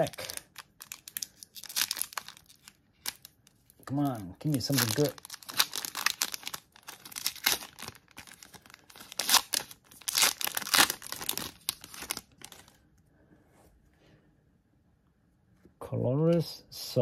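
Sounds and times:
plastic wrapper tearing and crinkling: 0.0s - 12.8s.

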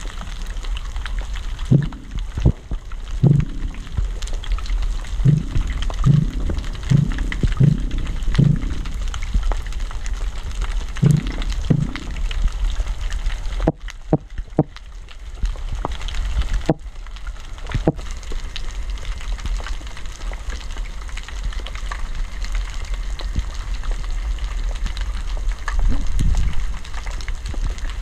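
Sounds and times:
underwater crackling hiss: 0.0s - 28.0s
low hum: 1.5s - 14.8s
sharp knocks: 1.7s - 2.6s, 3.2s - 4.0s, 5.2s - 8.9s, 11.0s - 12.2s
fish grunt: 5.1s - 9.3s.

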